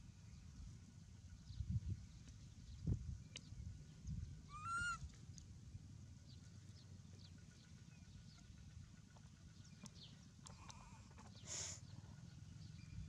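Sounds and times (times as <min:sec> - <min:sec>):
high-pitched animal call: 0:04.5 - 0:05.0.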